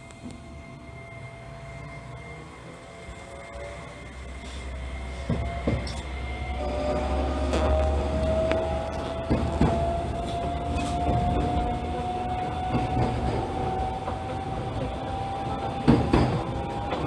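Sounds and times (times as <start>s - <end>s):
train car rumble: 0.0s - 17.0s
electric motor whine: 5.6s - 12.2s.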